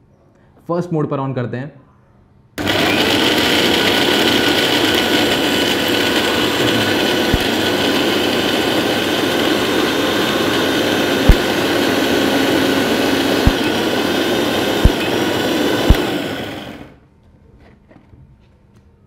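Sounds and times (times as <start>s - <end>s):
mixer grinder motor running: 2.6s - 17.0s.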